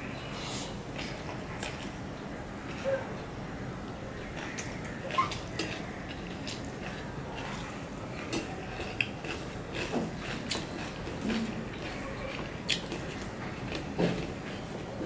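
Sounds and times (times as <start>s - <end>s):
chewing: 4.2s - 14.7s.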